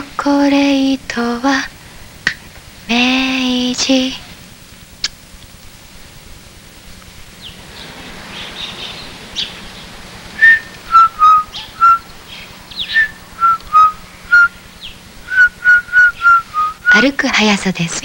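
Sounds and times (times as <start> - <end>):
faint hiss: 0.0 - 18.0
whistled melody: 10.4 - 12.0, 12.9 - 14.6, 15.3 - 17.0.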